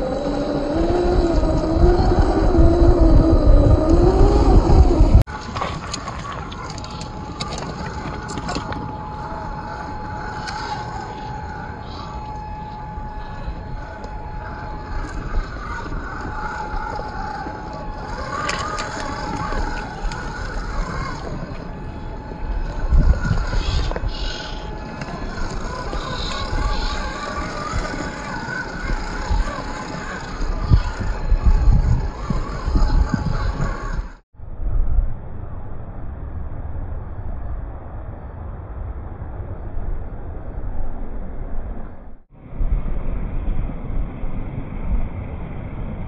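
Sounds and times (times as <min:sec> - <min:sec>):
toy car electric motor whine: 0:00.0 - 0:34.2
wind rumble on microphone: 0:00.0 - 0:46.0.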